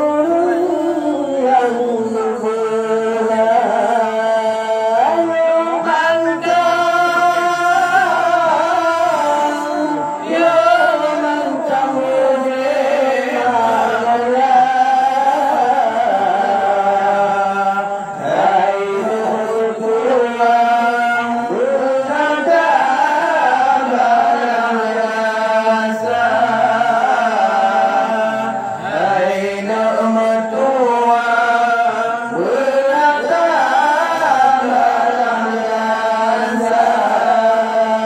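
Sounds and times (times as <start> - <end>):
man singing into a microphone: 0.0 - 38.0.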